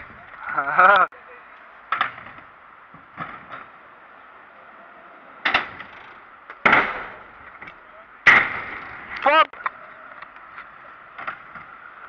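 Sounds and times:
scooter clacking on ramp: 5.4 - 8.9.

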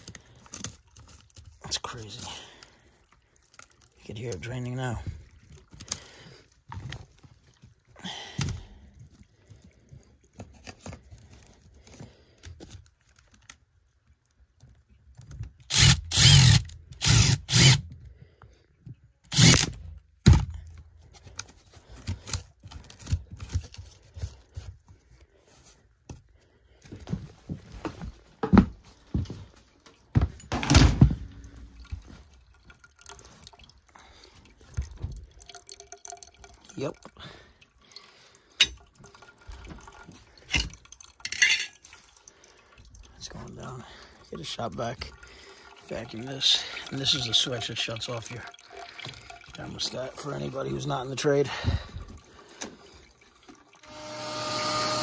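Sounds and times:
water draining and dripping: 0.0 - 15.8, 31.0 - 53.9.

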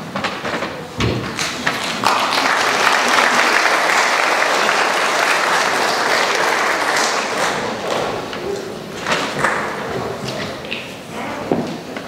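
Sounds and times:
audience applauding: 1.3 - 10.3.

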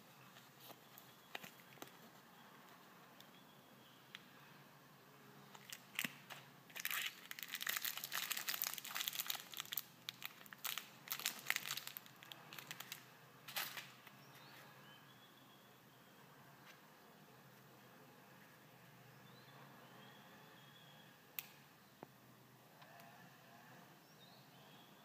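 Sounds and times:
plastic packet crinkling: 5.5 - 14.0.

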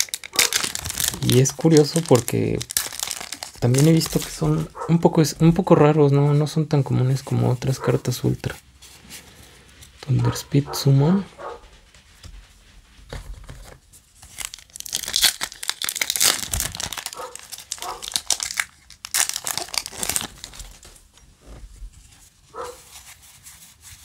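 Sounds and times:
foil wrapper crinkling and tearing: 0.0 - 4.7, 14.2 - 21.1.

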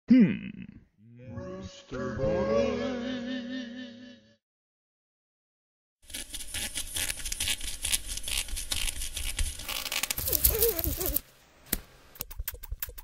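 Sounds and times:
crackling scratchy noise: 6.1 - 11.2.

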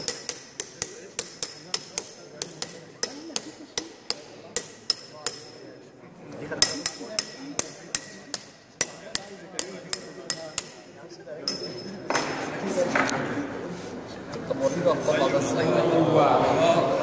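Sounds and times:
ringing metal taps: 0.0 - 5.7, 6.6 - 12.4.

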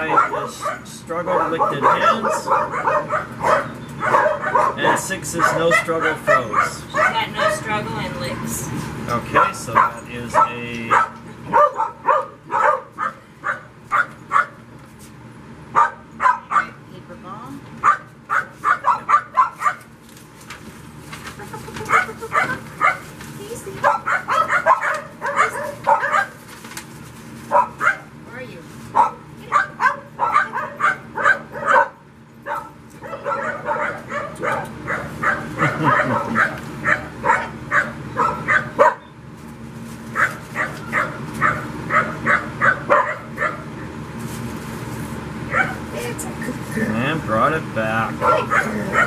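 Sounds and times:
puppy barking: 0.0 - 7.7, 9.3 - 14.6, 15.7 - 16.8, 17.8 - 19.9, 21.8 - 23.2, 23.8 - 26.4, 27.5 - 28.2, 28.9 - 39.2, 40.1 - 43.8, 45.5 - 45.9, 48.2 - 49.0.

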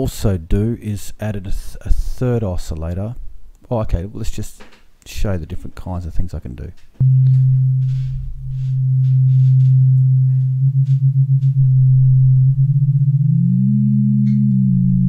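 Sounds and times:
synthesized sine-wave hum: 7.0 - 15.0.

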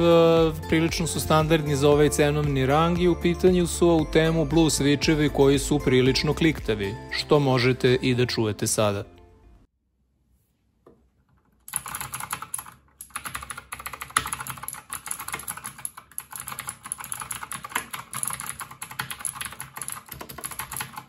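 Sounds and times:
mechanical keyboard clicks: 11.7 - 21.0.

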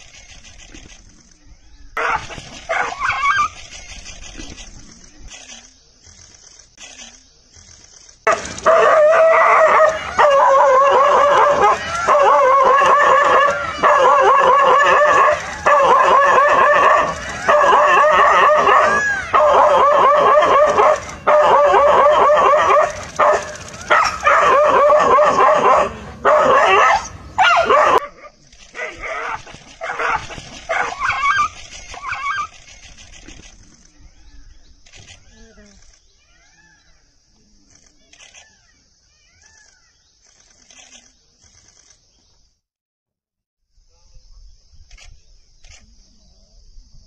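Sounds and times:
dog yelping in distress: 2.0 - 3.6, 8.3 - 28.1, 28.8 - 32.9.

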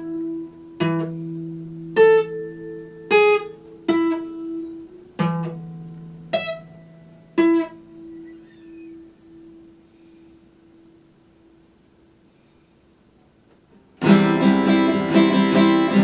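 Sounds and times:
acoustic guitar plucked slowly: 0.0 - 11.0, 13.8 - 16.0.

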